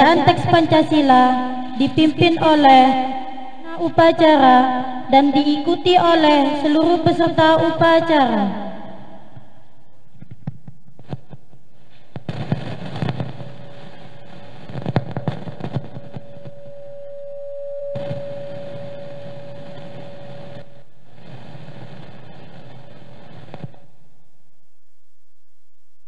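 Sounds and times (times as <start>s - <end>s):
microphone feedback ringing tone: 13.0s - 20.9s.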